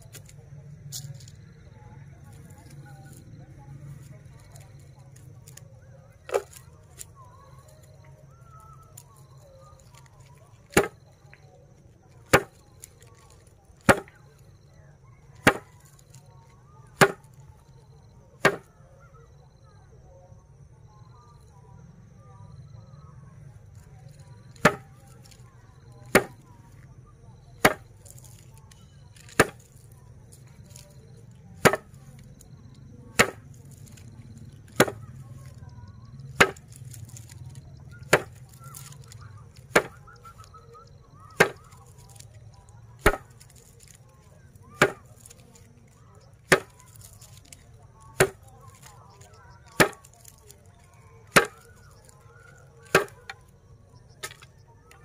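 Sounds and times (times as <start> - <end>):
grass stalks smacking on board: 0.0 - 1.5, 2.2 - 14.5, 15.3 - 17.8, 18.4 - 18.7, 23.7 - 27.0, 27.6 - 55.0.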